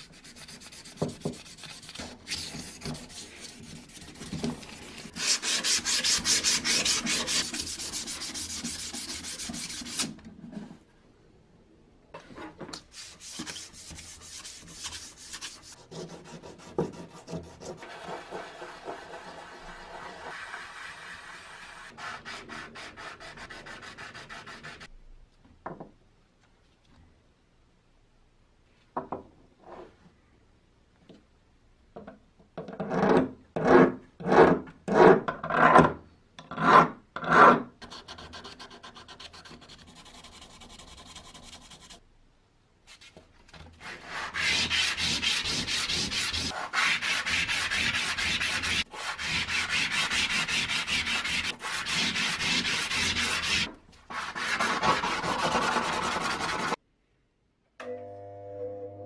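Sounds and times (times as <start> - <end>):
sandpaper rubbing on copper: 5.1 - 10.1, 12.9 - 24.9, 43.8 - 56.8.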